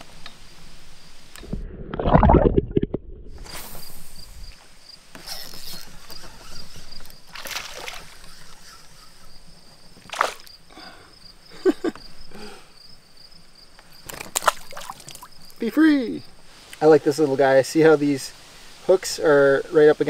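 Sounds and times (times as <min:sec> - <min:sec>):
water splashing: 0:01.4 - 0:03.8, 0:07.3 - 0:08.7, 0:10.0 - 0:10.5, 0:14.1 - 0:15.6.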